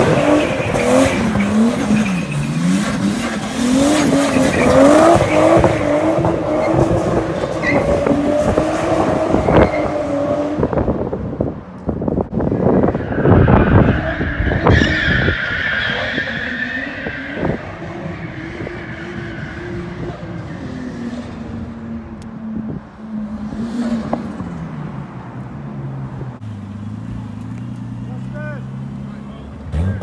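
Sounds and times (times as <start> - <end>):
car engine revving: 0.0 - 11.3.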